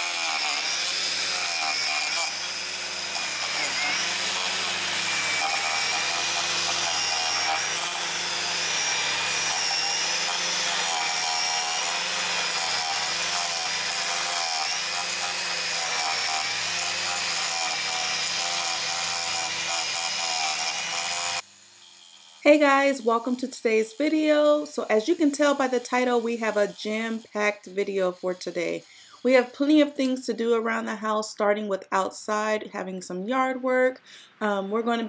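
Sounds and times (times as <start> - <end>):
small motor running: 0.0 - 29.8.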